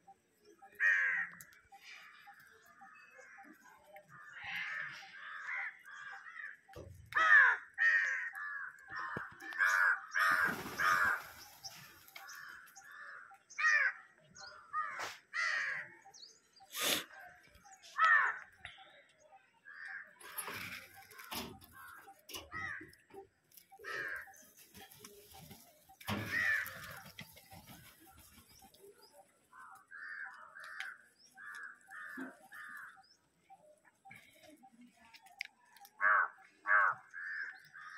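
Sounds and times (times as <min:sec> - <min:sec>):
crows cawing: 0:00.7 - 0:03.5, 0:04.1 - 0:14.0, 0:14.7 - 0:16.0, 0:18.0 - 0:18.6, 0:21.0 - 0:23.1, 0:23.7 - 0:24.4, 0:26.0 - 0:27.3, 0:29.6 - 0:33.1, 0:36.0 - 0:37.9.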